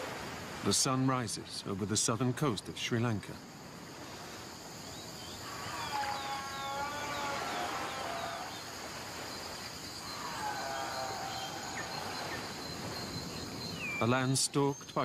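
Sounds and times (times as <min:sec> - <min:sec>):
insects chorus: 0:00.0 - 0:15.0
bird chirps: 0:10.0 - 0:15.0.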